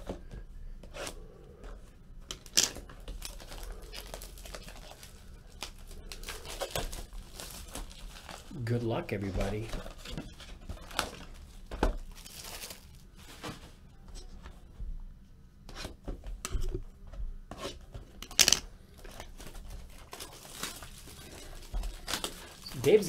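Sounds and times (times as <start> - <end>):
cellophane tearing and crinkling: 3.1 - 8.6, 9.2 - 13.4, 19.0 - 23.0.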